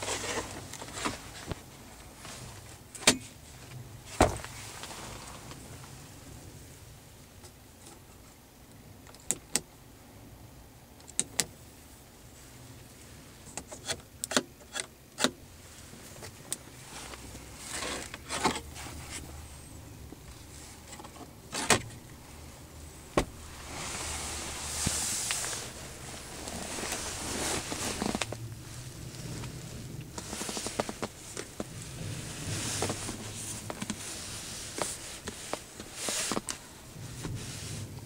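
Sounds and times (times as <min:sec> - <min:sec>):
car switches clicking: 0:09.0 - 0:09.7, 0:11.0 - 0:11.5.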